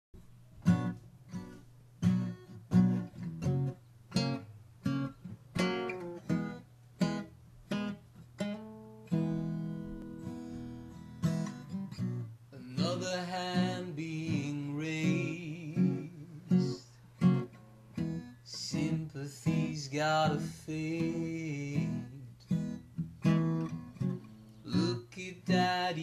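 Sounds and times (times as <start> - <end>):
acoustic guitar chords: 0.2 - 26.0.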